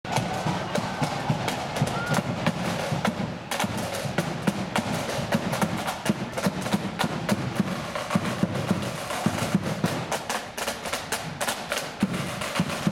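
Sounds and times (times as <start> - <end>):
side drums beating march rhythm: 0.0 - 12.9.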